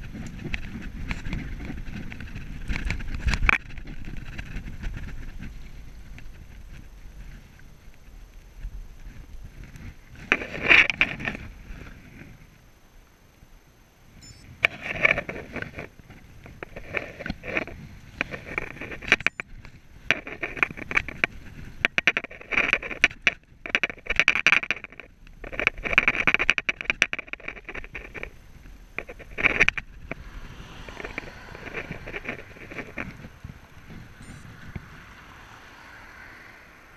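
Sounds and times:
bicycle rattling and knocking: 0.0 - 8.1, 14.7 - 34.8.

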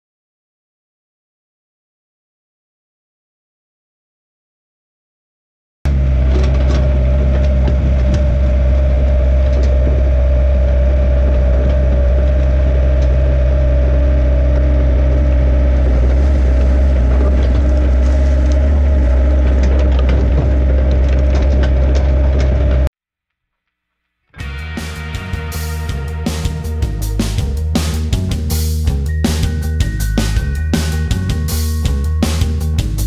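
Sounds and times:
excavator diesel engine running: 5.9 - 22.9, 24.4 - 33.0
machine clanks and crunches: 5.9 - 22.9.

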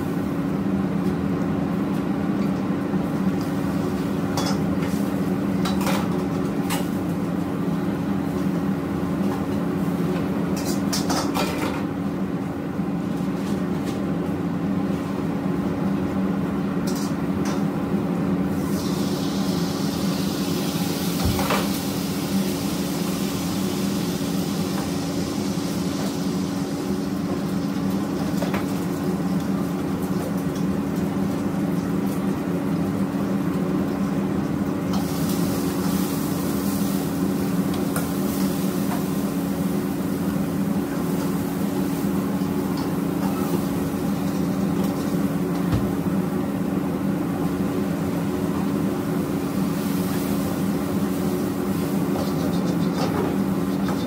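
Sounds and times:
gas burners humming: 0.0 - 54.0
food sizzling in wok: 18.5 - 28.4, 34.9 - 45.4, 48.9 - 54.0.

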